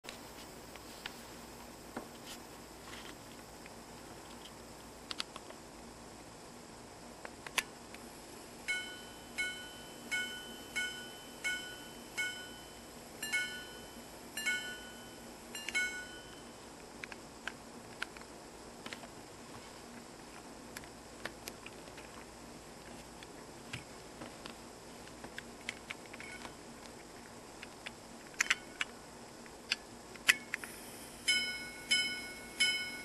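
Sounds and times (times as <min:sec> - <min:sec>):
pocket watch chiming: 0:08.7 - 0:16.5, 0:31.3 - 0:33.0.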